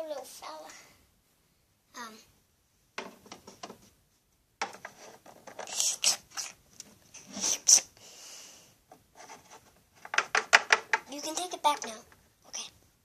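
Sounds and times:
plastic toys clicking and scraping: 4.7 - 6.6, 9.3 - 12.2.

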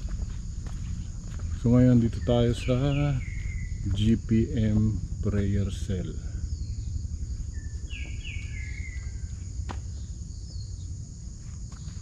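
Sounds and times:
insect drone: 0.0 - 12.0
low rumble: 0.0 - 12.0
bird falling calls: 2.1 - 4.2, 6.2 - 10.9.

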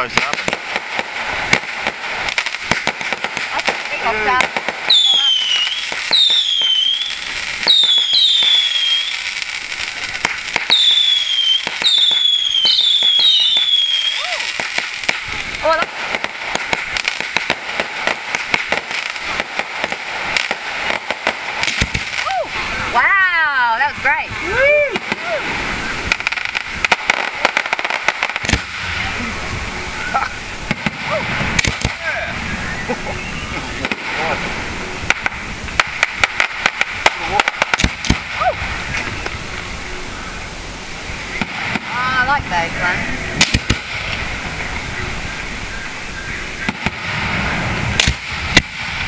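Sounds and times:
firework pops and cracks: 0.0 - 22.9, 24.6 - 29.3, 30.2 - 32.2, 33.7 - 34.4, 35.0 - 39.7, 41.3 - 44.4, 46.6 - 49.0
firework whistles sliding down: 4.8 - 16.4, 24.4 - 41.8.

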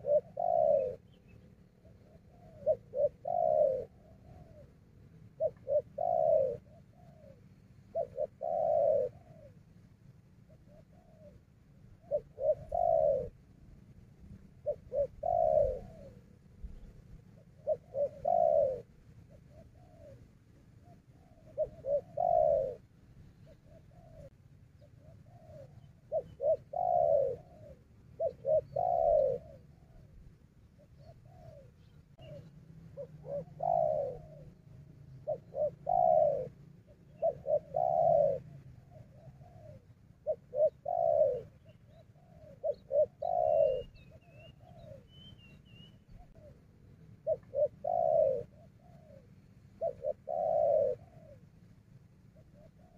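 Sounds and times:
dove cooing: 0.0 - 52.9
faint high bird chirps: 14.6 - 46.6.

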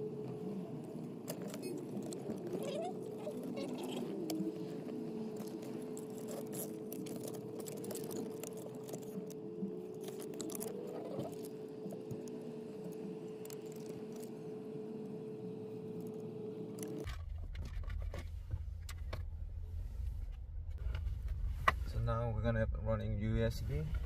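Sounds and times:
steady hum: 0.0 - 24.0
wiring clicks and rustles: 0.8 - 14.5.

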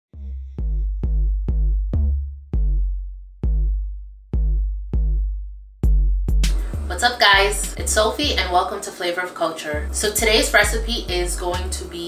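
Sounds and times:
electronic drum-machine bass hits: 0.4 - 8.0.

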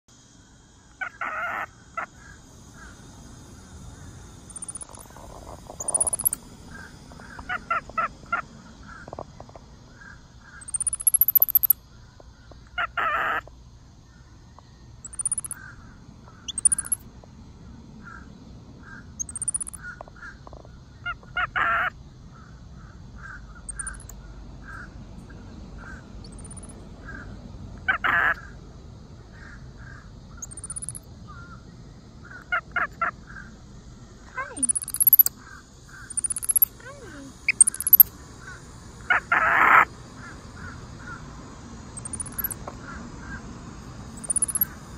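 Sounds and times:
harsh monkey call: 0.8 - 9.3, 9.9 - 11.8, 12.7 - 13.5, 15.0 - 17.0, 18.0 - 28.6, 29.3 - 33.6, 34.3 - 41.4, 42.0 - 43.5, 44.2 - 44.9
baby monkey chirping: 1.0 - 2.9, 4.5 - 9.1, 10.5 - 11.8, 12.7 - 13.4, 15.0 - 17.0, 19.2 - 20.0, 21.1 - 21.9, 23.6 - 24.1, 25.8 - 27.2, 27.8 - 28.4, 30.4 - 31.1, 34.4 - 38.1, 39.0 - 40.8, 42.0 - 43.4, 44.1 - 44.8.

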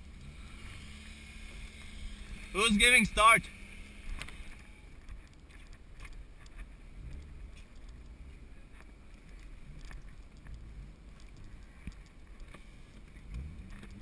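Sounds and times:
car engine rumble: 0.0 - 14.0
road noise inside cabin: 0.0 - 14.0
faint clicks: 3.6 - 14.0.

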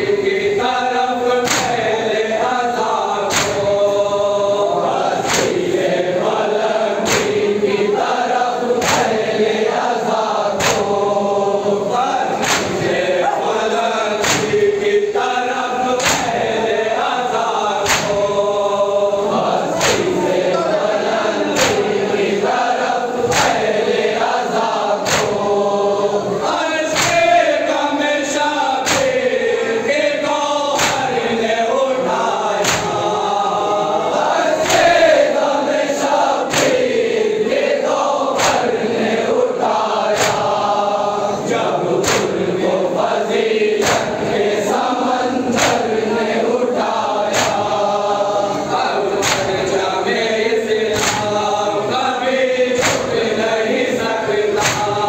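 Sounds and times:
men chanting a lament in unison: 0.0 - 55.0
hands slapping chests: 1.4 - 1.8, 3.3 - 3.8, 5.1 - 5.7, 7.0 - 7.4, 8.8 - 9.2, 10.5 - 11.0, 12.3 - 13.0, 14.2 - 14.8, 16.0 - 16.5, 17.8 - 18.4, 19.4 - 20.2, 21.5 - 22.0, 23.2 - 23.7, 25.0 - 25.5, 26.9 - 27.4, 28.8 - 29.2, 30.8 - 31.2, 32.6 - 33.1, 34.6 - 35.0, 36.4 - 37.0, 38.3 - 38.9, 40.1 - 40.7, 42.0 - 42.4, 43.8 - 44.4, 45.5 - 46.0, 47.3 - 47.8, 49.2 - 49.8, 50.9 - 51.4, 52.8 - 53.2, 54.5 - 55.0.

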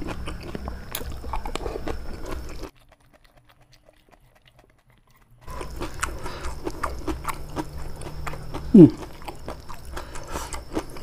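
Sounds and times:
small crunches: 0.0 - 11.0
wet chewing: 0.0 - 11.0
mouth clicks: 5.5 - 11.0.

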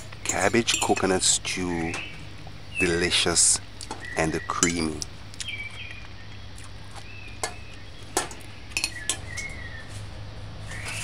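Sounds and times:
fork clinking on ceramic plate: 0.3 - 1.2.

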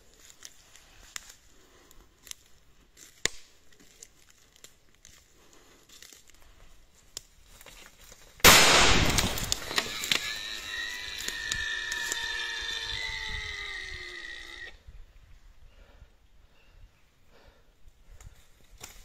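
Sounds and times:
crunching dry leaves and twigs: 0.0 - 14.7, 18.1 - 19.0
loud gunshot: 8.4 - 10.0.

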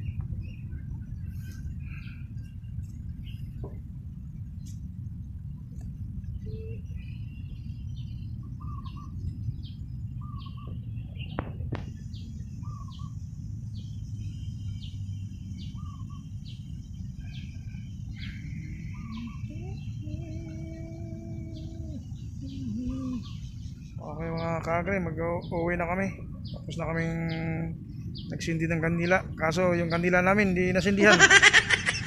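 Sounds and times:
small birds chirping: 0.0 - 32.0
wind rumbling on microphone: 0.0 - 32.0
held low tone: 5.2 - 7.8, 17.0 - 28.4
high-pitched whine: 10.2 - 29.3.

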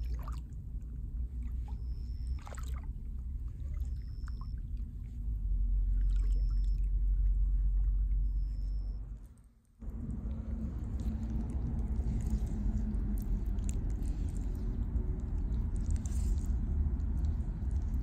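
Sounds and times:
steady low rumble: 0.0 - 18.0
feet squelching through mud: 10.3 - 18.0.

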